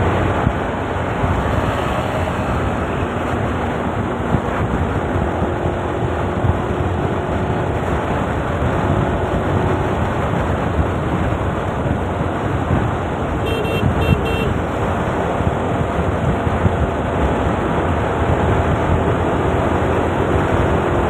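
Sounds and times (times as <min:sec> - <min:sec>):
scooter road noise: 0:00.0 - 0:21.0
wind rushing over microphone: 0:00.0 - 0:21.0
vehicle horn toots: 0:13.4 - 0:14.6.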